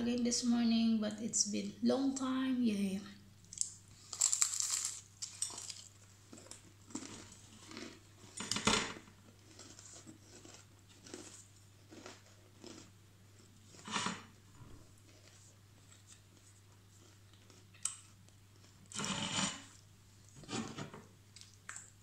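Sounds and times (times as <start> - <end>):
cracker crunching: 3.4 - 8.6, 9.3 - 13.8, 15.0 - 19.1
chewing crunches: 3.5 - 8.4, 9.4 - 13.5, 15.2 - 19.0.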